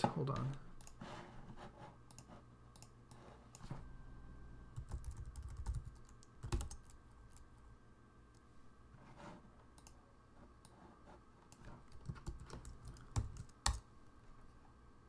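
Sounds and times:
keyboard keystrokes: 0:04.8 - 0:07.4, 0:11.9 - 0:13.8.

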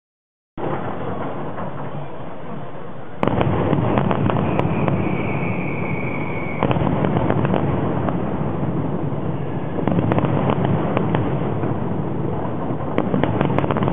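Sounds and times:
fireworks bursting and crackling: 0:00.6 - 0:13.9
high whistle: 0:04.2 - 0:06.9.

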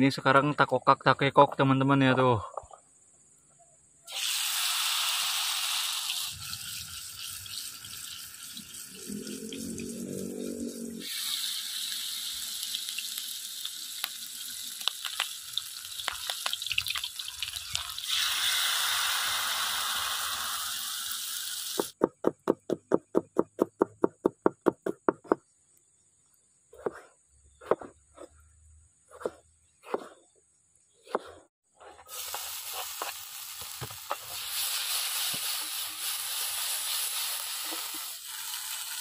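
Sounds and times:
food sizzling in hot oil: 0:04.1 - 0:22.0, 0:32.0 - 0:39.0
knife chopping on cutting board: 0:26.8 - 0:27.9, 0:29.2 - 0:30.2, 0:31.1 - 0:31.4.

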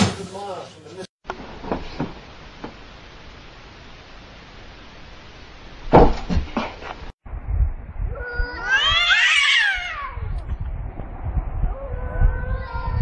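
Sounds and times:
cat caterwauling: 0:08.1 - 0:10.4, 0:11.7 - 0:13.0.

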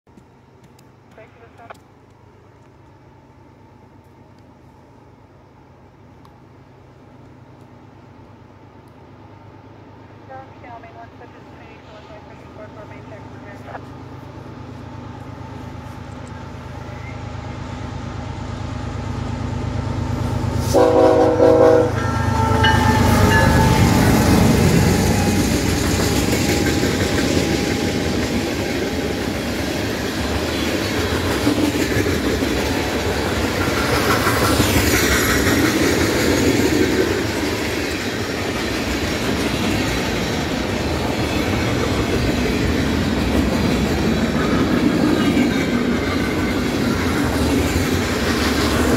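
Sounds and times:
diesel locomotive rumble: 0:00.1 - 0:48.9
train horn blast: 0:20.6 - 0:24.2
train wheels clicking over rail joints: 0:22.0 - 0:48.9.

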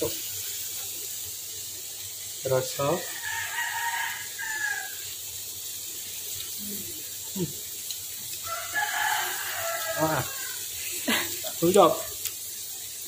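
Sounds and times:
rooster crowing: 0:03.0 - 0:05.2, 0:08.4 - 0:11.2.

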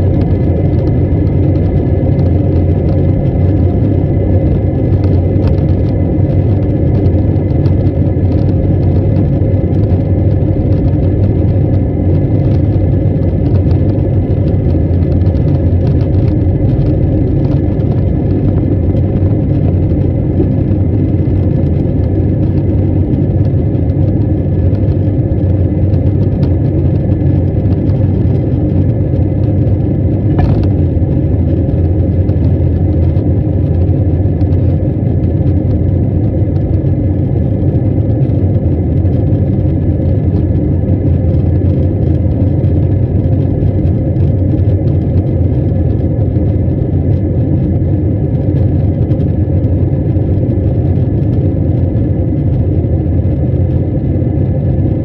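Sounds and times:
faint high engine whine: 0:00.0 - 0:55.0
jet engines rumbling in cabin: 0:00.0 - 0:55.0.

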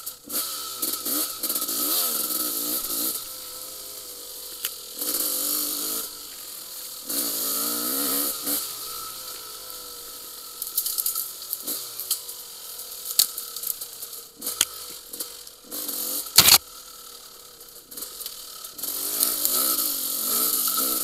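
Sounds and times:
dirt bike engine revving: 0:00.3 - 0:06.3, 0:07.0 - 0:09.2, 0:15.7 - 0:16.6.

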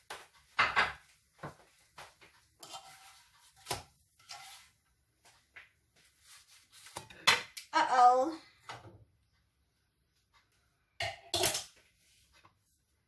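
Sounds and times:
dishes and pans clattering: 0:00.5 - 0:01.1, 0:02.6 - 0:04.6, 0:11.0 - 0:11.8.

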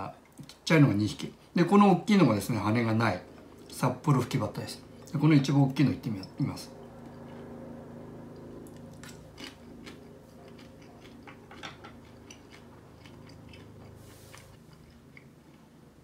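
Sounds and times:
faint steady hum: 0:00.0 - 0:16.0
person chewing crunchy food: 0:06.8 - 0:15.9.

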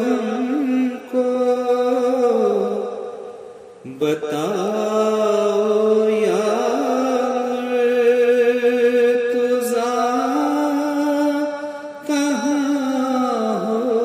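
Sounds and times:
man singing long lament note: 0:00.0 - 0:14.0.

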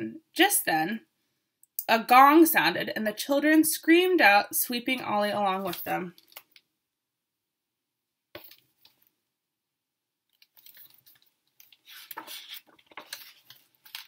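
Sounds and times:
book pages rustling: 0:10.3 - 0:14.0.

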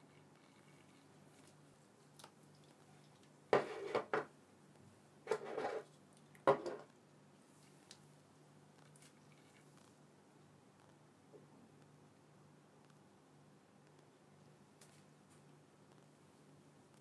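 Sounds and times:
object clattering on tabletop: 0:03.6 - 0:04.3, 0:06.4 - 0:06.9.

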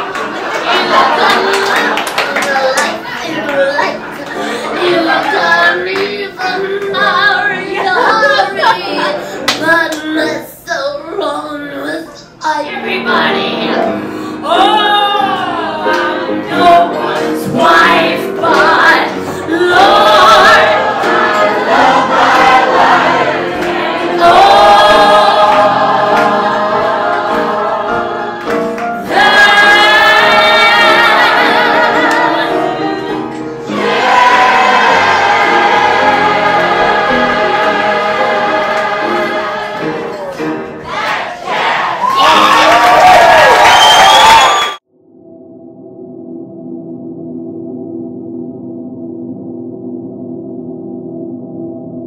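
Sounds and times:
piano accompaniment: 0:00.0 - 0:10.6, 0:11.8 - 0:52.0
woman belting a show tune: 0:04.8 - 0:15.7.

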